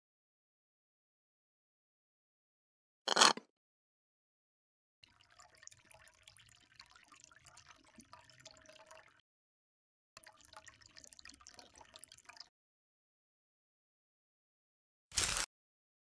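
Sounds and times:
metal spoon scraping glass: 3.1 - 3.4.

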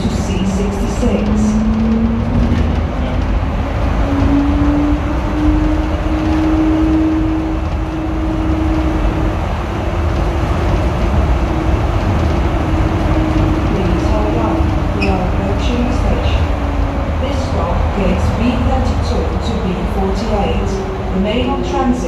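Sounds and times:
continuous low rumble: 0.0 - 22.0.

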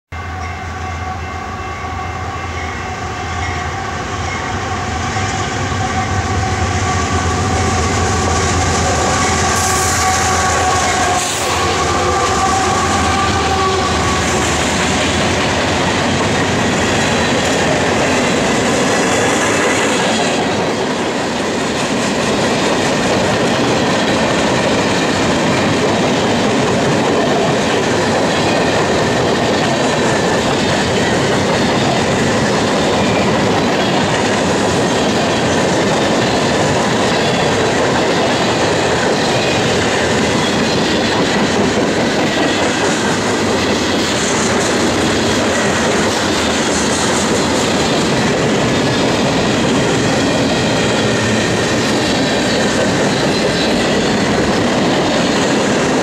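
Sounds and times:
diesel locomotives rumbling: 0.2 - 56.0
wheels clattering on rail: 6.2 - 56.0.

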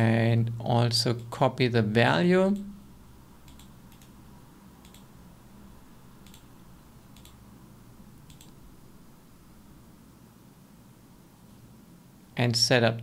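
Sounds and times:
low room hum: 0.0 - 13.0
computer mouse clicks: 3.4 - 4.2, 4.8 - 5.1, 6.2 - 6.5, 7.1 - 7.4, 8.2 - 8.6.

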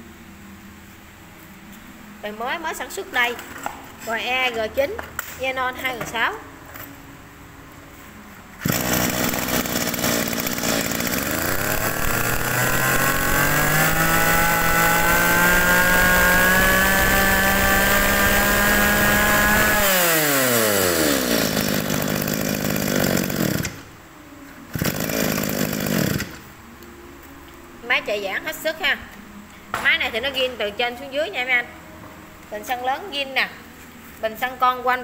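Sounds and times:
brush-cutter engine revving: 8.6 - 23.8, 24.7 - 26.4.

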